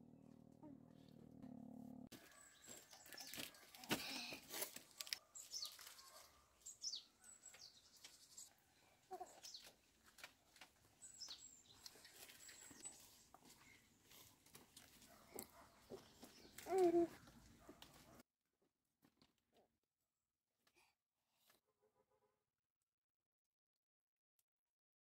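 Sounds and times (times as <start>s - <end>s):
small birds chirping: 2.2s - 10.0s, 10.6s - 14.4s, 15.0s - 18.2s.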